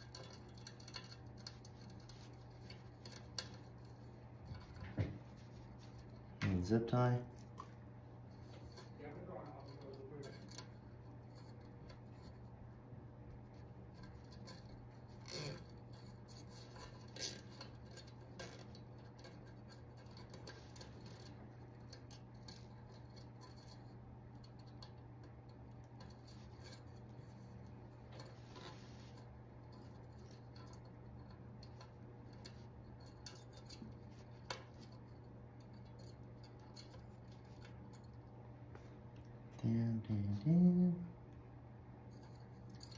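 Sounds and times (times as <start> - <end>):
steady low hum: 0.0 - 42.9.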